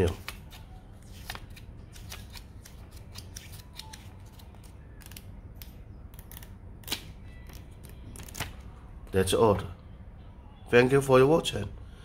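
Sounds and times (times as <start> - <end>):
paper pages flipping: 0.0 - 5.3.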